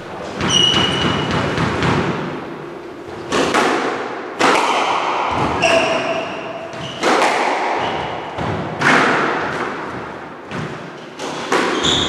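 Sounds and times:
shoes squeaking on wooden floor: 0:00.2 - 0:01.5, 0:05.3 - 0:07.1, 0:10.8 - 0:12.0
squash ball hits: 0:00.4 - 0:02.4, 0:03.1 - 0:12.0.

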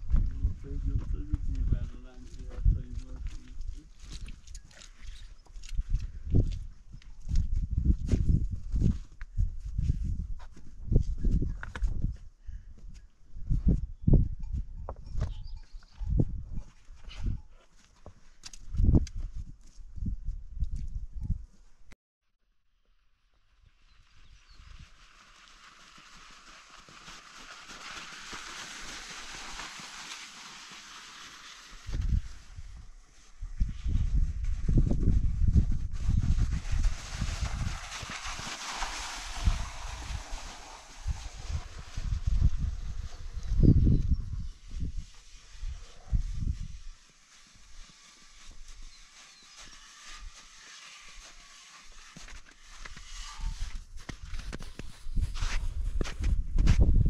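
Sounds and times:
wind rumbling on microphone: 0:00.0 - 0:17.5, 0:18.6 - 0:21.7, 0:31.8 - 0:47.1, 0:52.9 - 0:57.0
branch dragged over crusty snow: 0:23.9 - 0:56.4
footsteps on snow: 0:24.4 - 0:57.0.

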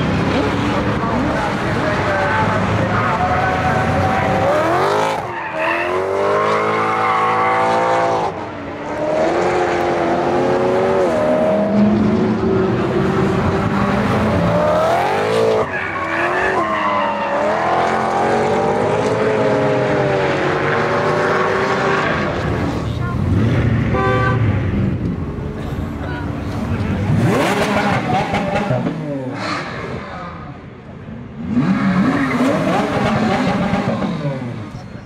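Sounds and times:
supercar engine accelerating: 0:26.4 - 0:30.2.

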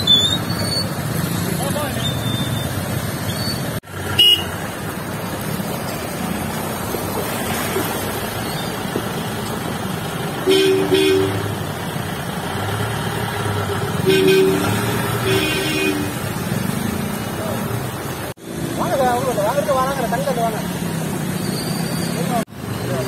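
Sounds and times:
engines and churned water: 0:00.0 - 0:23.0
vehicle horns honking: 0:04.1 - 0:04.6, 0:10.4 - 0:11.6, 0:14.0 - 0:16.3.

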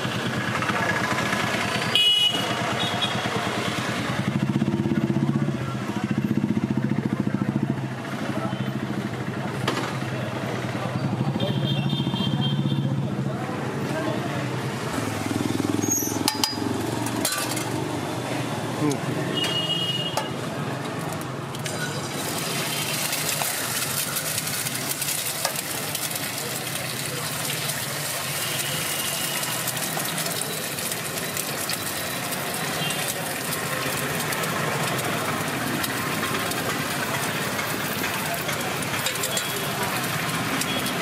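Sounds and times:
eggs sizzling on griddle: 0:20.3 - 0:41.0
metal spatula scraping griddle: 0:38.4 - 0:40.6.

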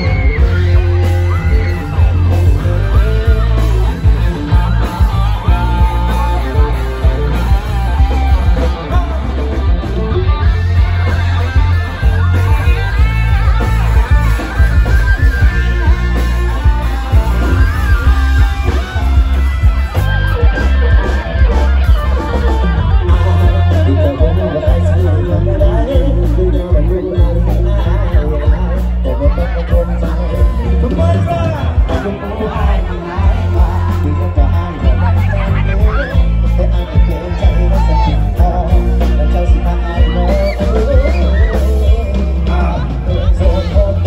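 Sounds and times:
live band playing through pa: 0:00.0 - 0:44.0
man singing: 0:00.0 - 0:44.0.

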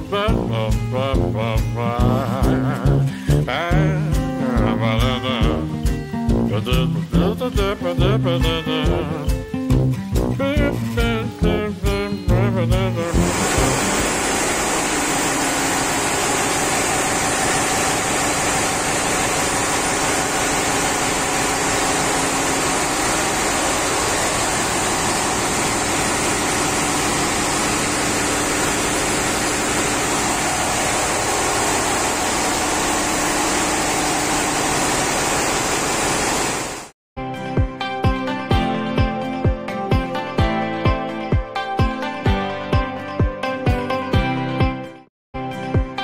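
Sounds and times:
engine room machinery noise: 0:13.0 - 0:37.0.

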